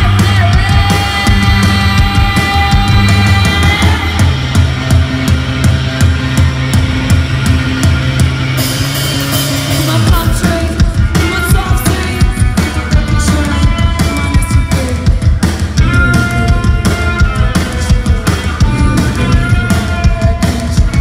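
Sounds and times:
woman singing: 0.0 - 4.5, 9.8 - 15.2
bass guitar: 0.0 - 21.0
drums: 0.0 - 21.0
electric guitar: 0.0 - 21.0.

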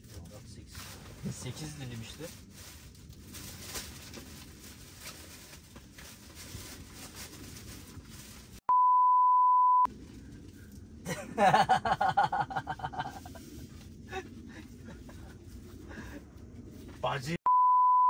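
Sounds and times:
censor bleep tone: 8.7 - 9.9, 17.5 - 18.0
man laughing loudly: 11.1 - 15.4.

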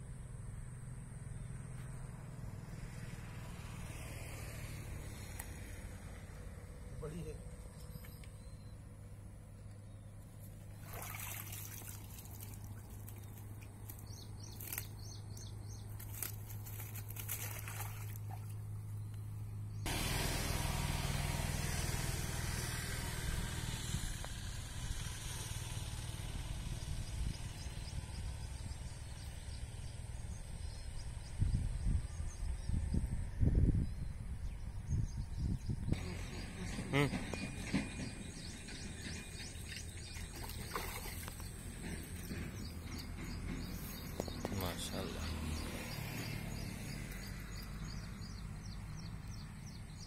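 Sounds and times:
rushing trickling water: 10.8 - 13.6, 16.1 - 18.6
knocks and splashes: 10.8 - 14.0, 16.0 - 18.6, 39.2 - 42.6
low bumps: 26.0 - 50.0.

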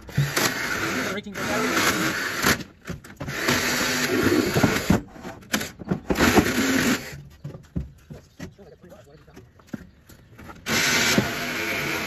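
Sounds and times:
cordless power tool running: 0.1 - 4.9, 10.6 - 12.0.

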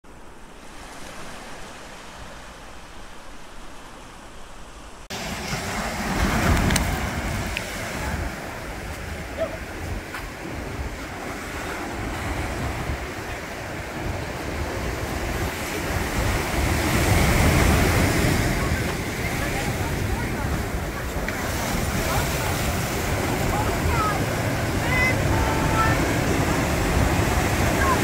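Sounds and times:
ocean surf over rocks: 0.0 - 28.0
wind rumbling on microphone: 0.0 - 28.0.

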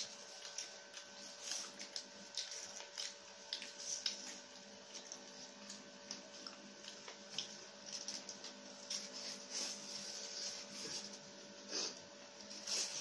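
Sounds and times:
chewing food: 0.0 - 9.8
faint steady hum: 0.0 - 13.0.

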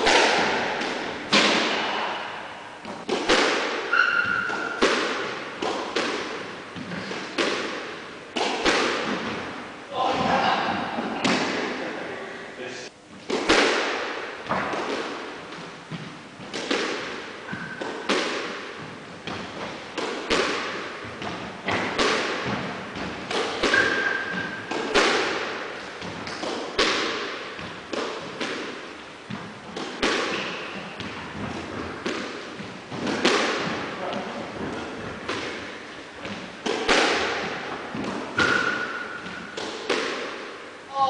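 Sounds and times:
squash ball hits echoing: 0.0 - 11.8, 13.2 - 41.0
shoe squeak: 3.9 - 4.8, 17.5 - 17.8.

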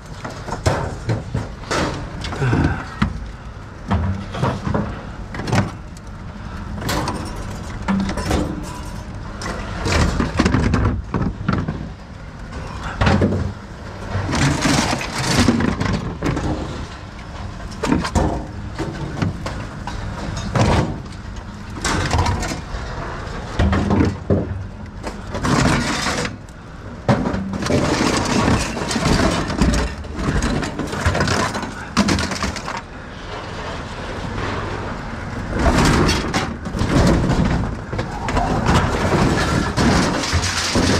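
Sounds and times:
scrap metal clanking: 35.5 - 40.9.

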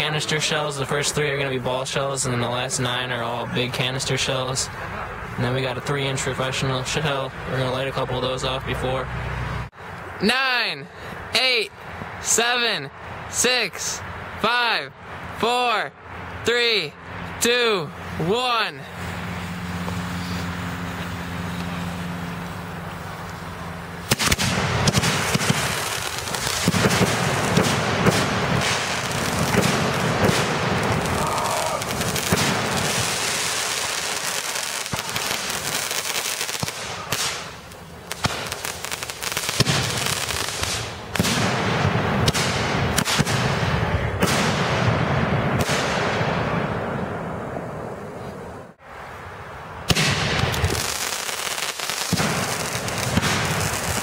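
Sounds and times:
fireworks popping and crackling: 19.0 - 46.3, 49.9 - 54.0.

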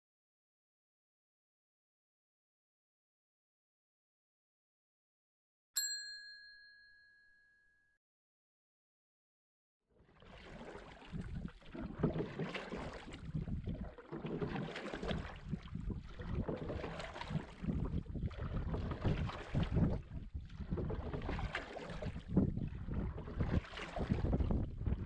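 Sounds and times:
bell-like ding: 5.8 - 8.0
wind rushing on microphone: 17.3 - 25.0.

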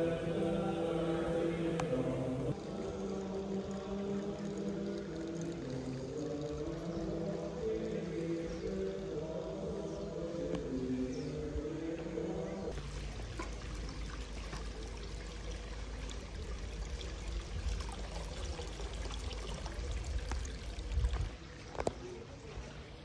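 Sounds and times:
water trickling into stone basin: 2.5 - 9.6, 12.7 - 22.0.

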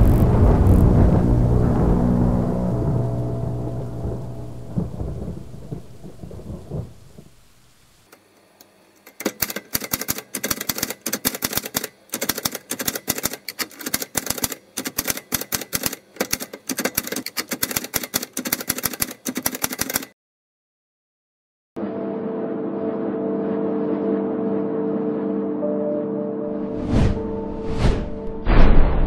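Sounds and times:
thunder and rain sting: 0.0 - 7.9, 28.2 - 29.0
typewriter key clicks: 9.0 - 20.1.

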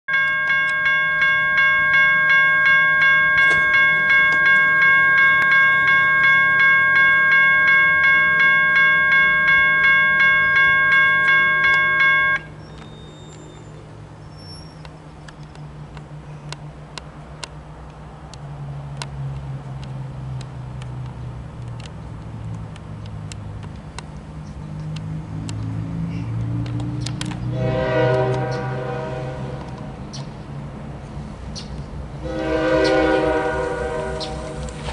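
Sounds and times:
railroad crossing bell ringing: 0.1 - 13.9, 32.2 - 34.9
diesel locomotive rumble: 1.2 - 34.9.

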